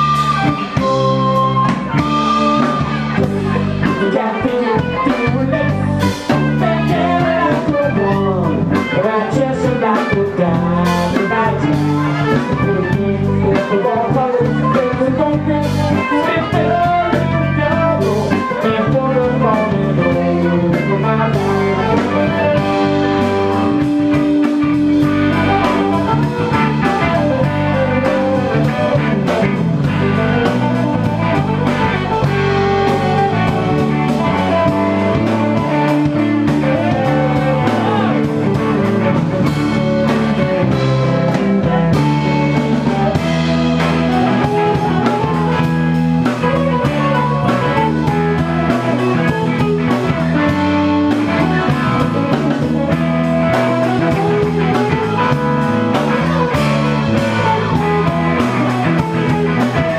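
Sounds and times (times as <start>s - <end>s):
rock band playing: 0.0s - 59.9s.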